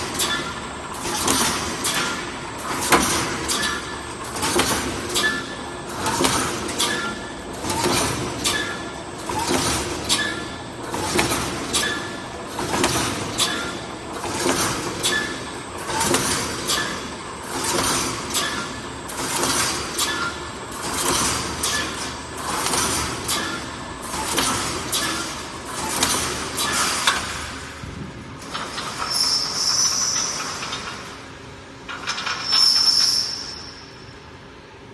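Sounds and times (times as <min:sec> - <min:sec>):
welding machine clanking stroke: 0:00.0 - 0:33.9.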